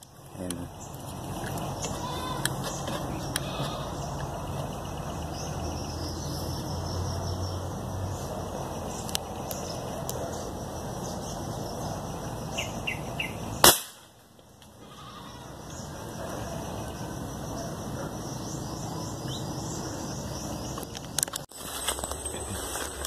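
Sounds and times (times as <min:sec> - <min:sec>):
outdoor background noise: 0:00.0 - 0:23.0
airgun firing: 0:13.6 - 0:14.1.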